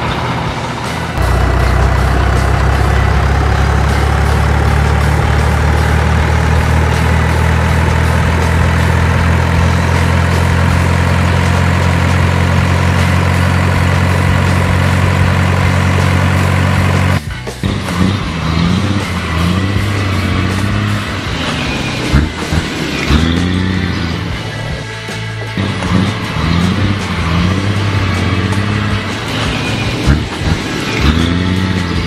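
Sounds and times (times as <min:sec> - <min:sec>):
truck engine droning: 0:00.0 - 0:32.0.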